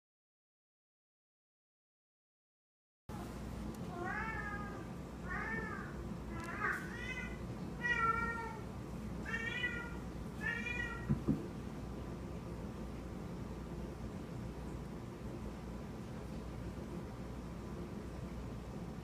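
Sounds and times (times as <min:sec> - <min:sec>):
cat chirping meows: 0:03.9 - 0:08.6, 0:09.2 - 0:11.2
soft thumps: 0:11.0 - 0:11.5.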